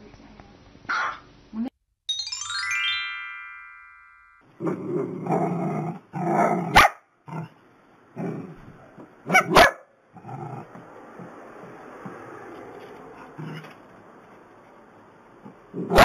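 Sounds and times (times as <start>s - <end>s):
dog growling and barking: 4.6s - 11.3s, 13.2s - 13.8s, 15.4s - 16.0s.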